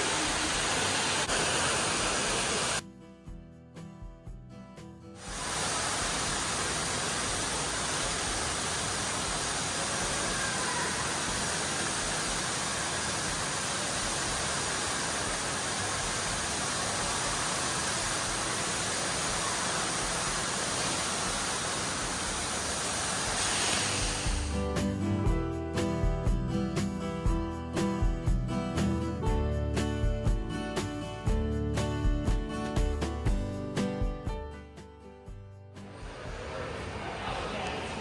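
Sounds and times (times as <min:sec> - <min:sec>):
waterfall rushing: 0:00.0 - 0:02.8, 0:05.2 - 0:24.7.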